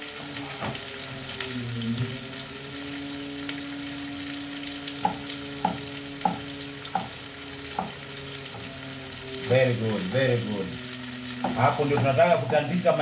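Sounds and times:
tomatoes sizzling in a frying pan: 0.0 - 13.0
knife knocking on chopping board: 5.0 - 7.2.

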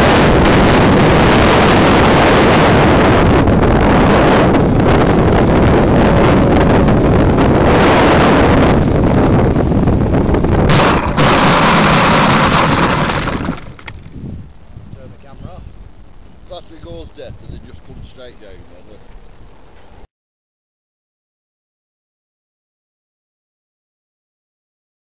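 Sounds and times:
wind buffeting microphone: 0.0 - 19.8.

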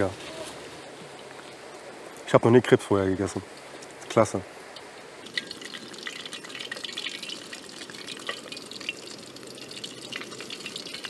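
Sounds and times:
oil sizzling and popping: 4.7 - 11.0.

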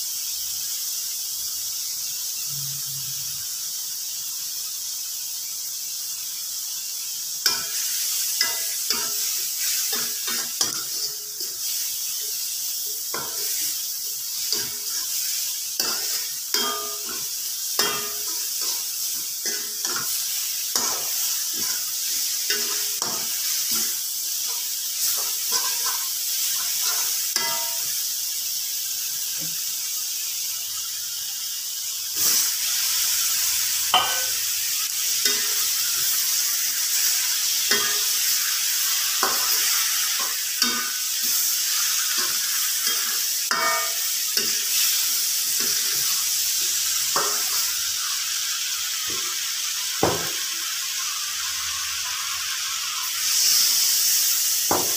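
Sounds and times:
food sizzling in hot oil: 0.0 - 54.9
metal spatula scraping wok: 12.9 - 27.9.

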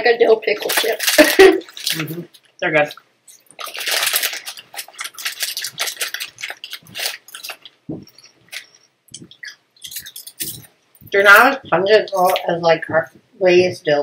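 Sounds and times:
foil bag crinkling: 0.2 - 8.8, 9.8 - 12.5
potato chips crunching: 0.5 - 11.4.

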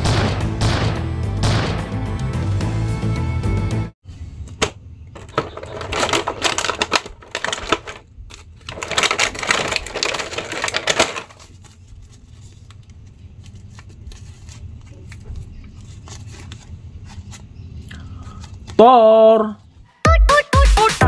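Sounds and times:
plastic packaging crinkling: 5.2 - 17.4.

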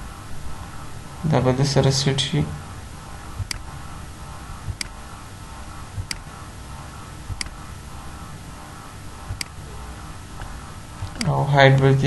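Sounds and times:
faint low room hum: 0.0 - 12.0
computer mouse clicks: 3.4 - 3.7, 4.7 - 5.0, 6.0 - 6.3, 7.3 - 7.6, 9.3 - 9.6, 10.4 - 11.3.

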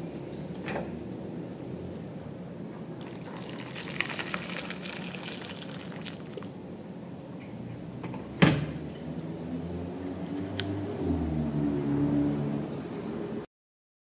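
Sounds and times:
water pouring into plastic bowl: 3.0 - 6.6.

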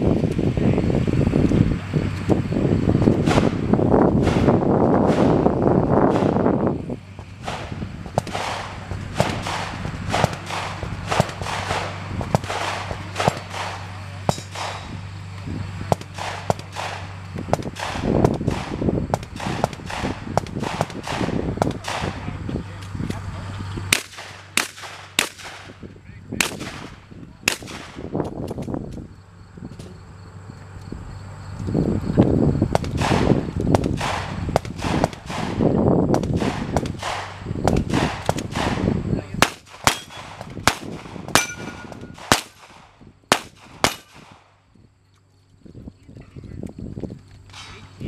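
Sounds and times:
gunshots: 3.2 - 6.6, 7.4 - 15.0, 15.9 - 22.3, 23.9 - 25.8, 26.4 - 28.1, 32.8 - 44.5.

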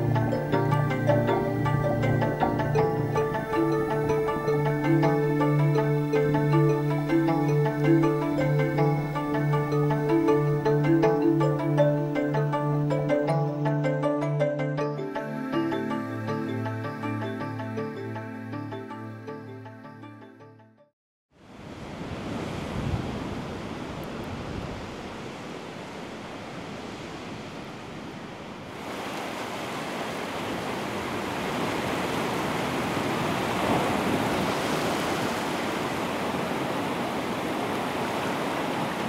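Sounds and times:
music: 0.0 - 20.9
ocean waves breaking on beach: 21.4 - 39.0.

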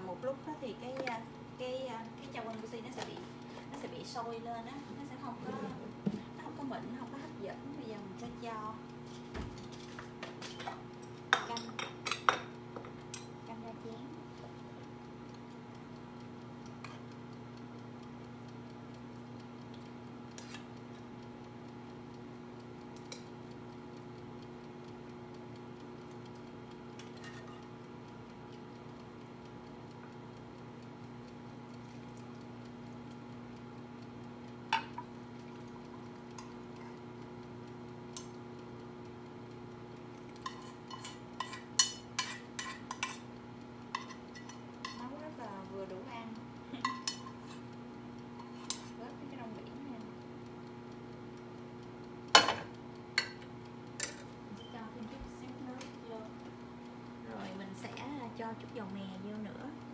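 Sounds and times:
steady low hum: 0.0 - 59.9
metal spoon clinking on saucepan: 10.4 - 13.4, 27.0 - 27.7, 34.7 - 35.1, 40.4 - 43.2, 43.9 - 45.0, 46.8 - 47.6, 52.3 - 53.4, 54.0 - 54.7.

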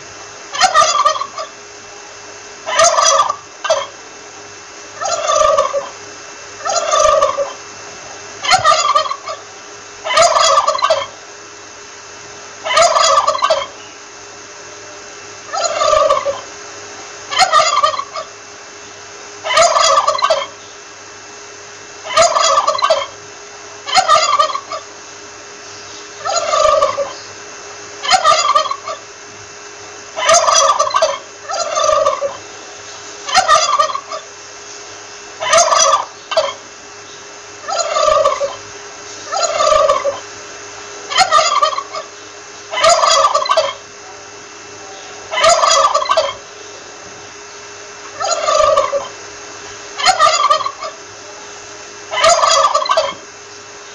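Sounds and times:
turkey gobbling: 0.5 - 1.6, 2.6 - 4.0, 4.9 - 6.0, 6.6 - 7.6, 8.4 - 11.2, 12.6 - 13.8, 15.5 - 16.5, 17.3 - 18.4, 19.4 - 20.6, 22.0 - 23.2, 23.8 - 25.0, 26.2 - 27.2, 28.0 - 29.1, 30.1 - 34.3, 35.3 - 36.7, 37.6 - 40.3, 41.0 - 47.0, 48.0 - 53.3.

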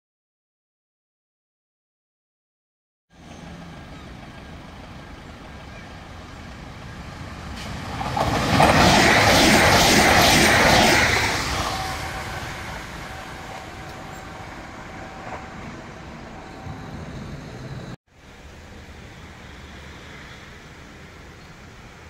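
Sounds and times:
train passing at speed: 3.1 - 22.0
wheels clattering on rail: 3.2 - 18.0.

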